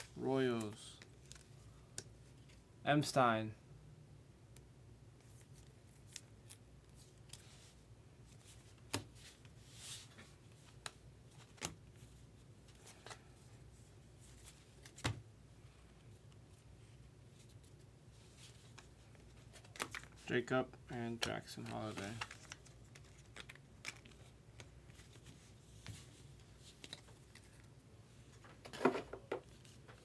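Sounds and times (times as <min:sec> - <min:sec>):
trading cards clicking and rustling: 0:18.7 - 0:20.2, 0:21.0 - 0:25.2.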